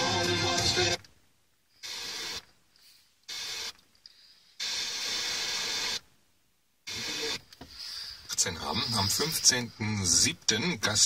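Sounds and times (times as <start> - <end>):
radio music: 0.0 - 1.1, 6.8 - 11.0
radio static bursts: 1.8 - 2.5, 3.3 - 3.8, 4.6 - 6.1, 6.8 - 11.0.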